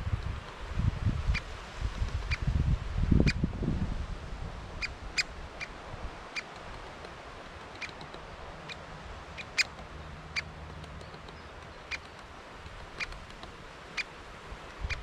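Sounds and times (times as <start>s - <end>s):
low wind rumble: 0.0s - 15.0s
woodpecker calls: 6.3s - 15.0s.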